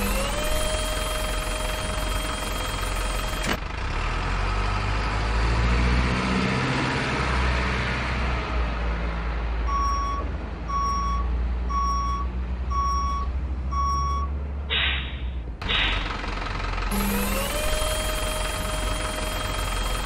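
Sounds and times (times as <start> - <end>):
reversing beeper: 0.0 - 3.6, 16.9 - 20.0
truck engine running: 0.0 - 5.5, 9.7 - 20.0.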